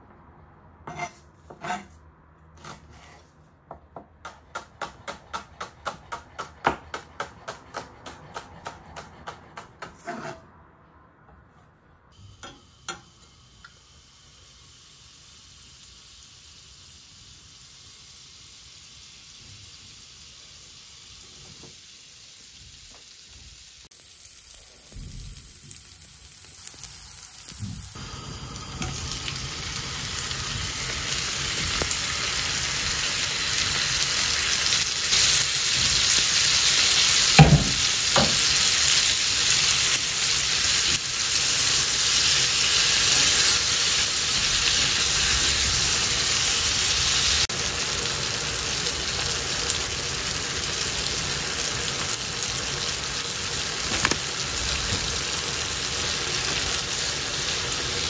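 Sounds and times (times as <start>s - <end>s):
vegetables sizzling in skillet: 12.2s - 58.0s.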